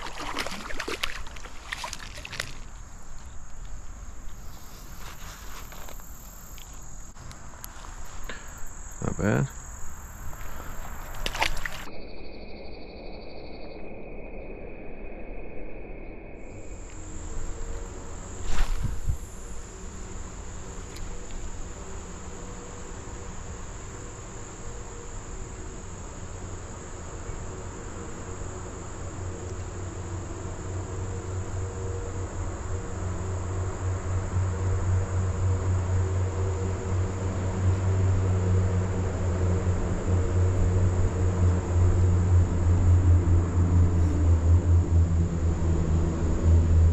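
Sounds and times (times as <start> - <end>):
insects trilling: 0.0 - 15.2, 15.9 - 46.9
low rumble: 33.8 - 46.9.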